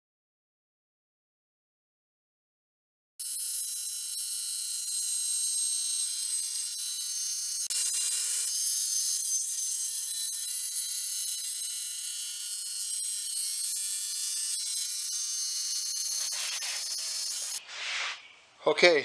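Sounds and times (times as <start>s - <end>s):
table saw whining: 3.2s - 17.6s
saw blade cutting wood: 3.2s - 18.2s.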